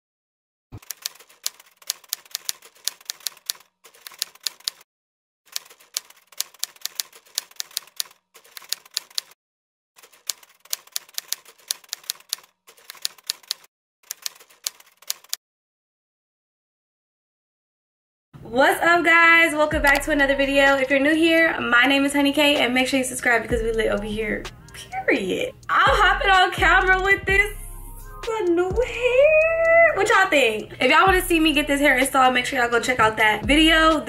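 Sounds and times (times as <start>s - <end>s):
typewriter key clacks: 0.8s - 4.8s, 5.5s - 9.4s, 10.0s - 15.4s.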